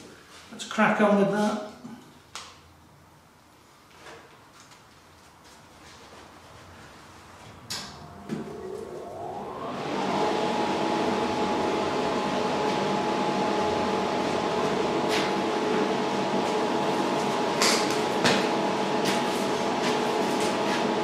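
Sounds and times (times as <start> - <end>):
electric fan whirring: 5.8 - 21.0.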